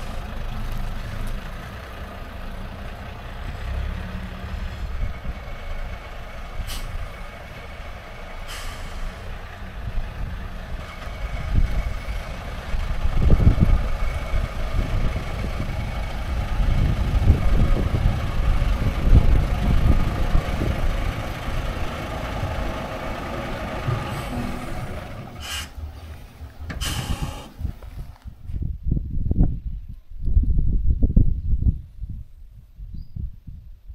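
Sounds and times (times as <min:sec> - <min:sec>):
engine whine: 0:00.0 - 0:28.6
bus engine driving past: 0:00.0 - 0:28.7
short sharp hisses: 0:25.4 - 0:25.8, 0:26.8 - 0:27.5.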